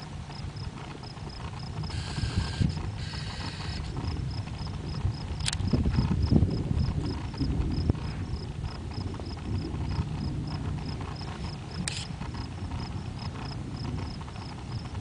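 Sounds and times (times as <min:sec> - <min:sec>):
low rumble: 0:00.0 - 0:15.0
night insects chirping: 0:00.3 - 0:15.0
sharp tick: 0:05.4 - 0:05.7.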